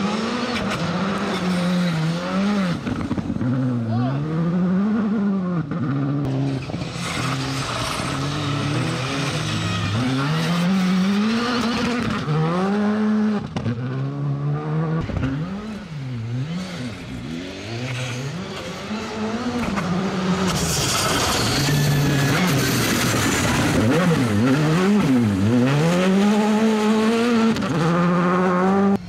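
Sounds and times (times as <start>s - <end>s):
rally car engine revving: 0.0s - 29.0s
gravel and tyre hiss: 6.5s - 10.3s, 20.0s - 24.4s.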